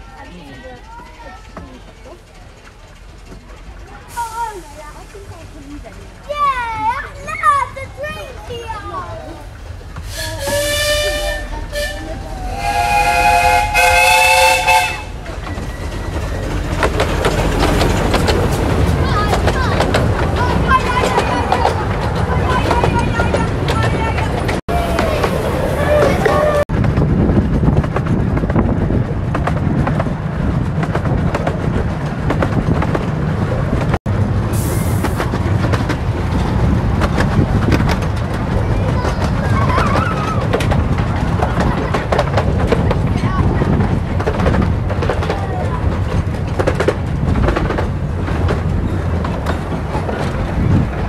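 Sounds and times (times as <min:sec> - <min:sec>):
steam train passing on rails: 0:00.0 - 0:51.0
steam whistle blasts: 0:10.1 - 0:15.1
steam hiss: 0:34.5 - 0:35.3.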